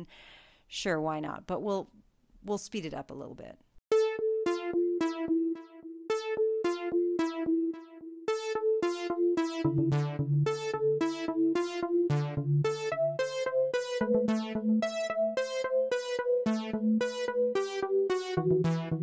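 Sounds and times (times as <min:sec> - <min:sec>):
synth notes: 0:03.9 - 0:19.0
low bass notes: 0:04.5 - 0:17.3.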